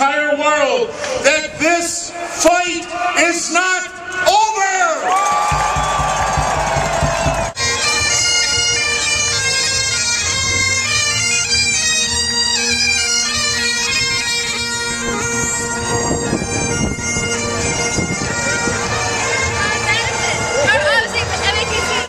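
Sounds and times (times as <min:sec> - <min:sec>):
bagpipe band playing: 0:00.0 - 0:22.0.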